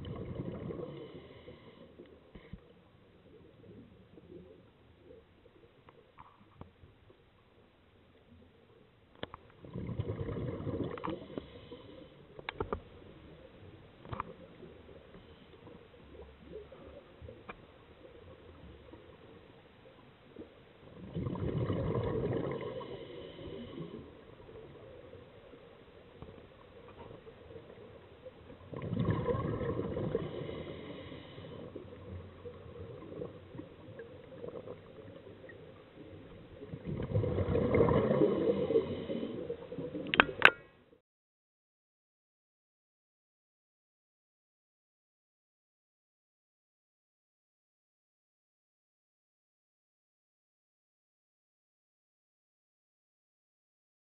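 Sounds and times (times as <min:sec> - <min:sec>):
underwater bubbles gurgling: 0:00.0 - 0:02.5, 0:03.1 - 0:06.4, 0:09.2 - 0:40.6
faint clicks: 0:09.1 - 0:09.6, 0:12.4 - 0:12.9, 0:39.9 - 0:40.7.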